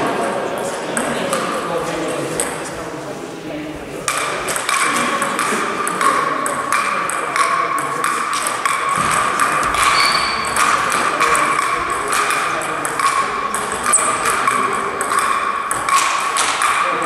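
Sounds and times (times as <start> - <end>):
table tennis ball pings: 4.1 - 17.0.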